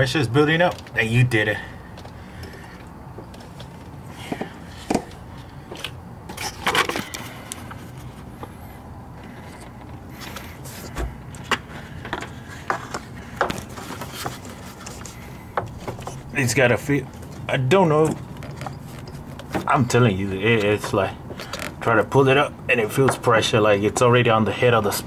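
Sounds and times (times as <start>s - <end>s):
low steady hum: 0.0s - 25.0s
hands handling engine parts: 1.9s - 21.9s.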